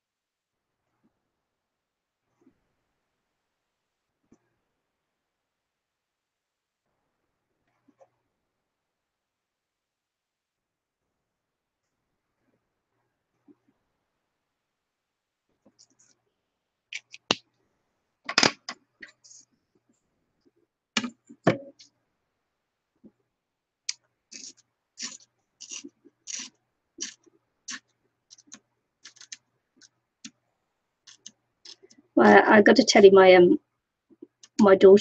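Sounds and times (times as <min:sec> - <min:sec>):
paper and steel ruler handled: 0:24.3 - 0:29.4.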